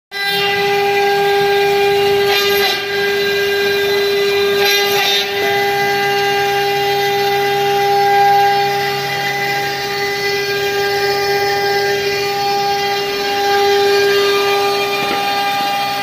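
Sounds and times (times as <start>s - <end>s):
bit cutting metal: 0.1s - 16.0s
router spindle whine: 0.2s - 16.0s
low hum: 3.4s - 16.0s.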